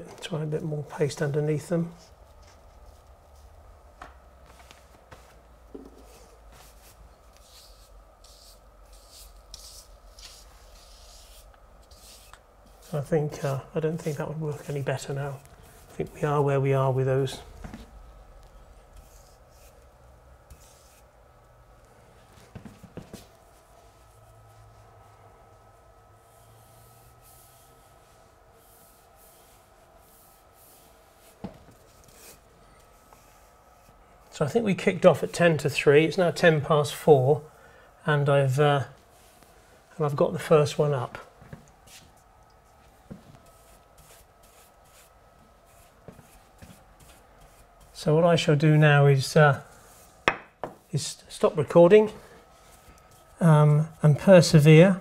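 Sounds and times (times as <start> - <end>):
wallpaper brush swishing: 4.4 - 16.4, 19.0 - 21.2, 22.3 - 34.3, 41.8 - 48.2, 49.6 - 50.2
scratchy rubbing strokes on paper: 6.0 - 16.3, 18.9 - 19.9, 20.5 - 21.2, 26.2 - 34.0, 41.8 - 48.2, 49.6 - 50.3.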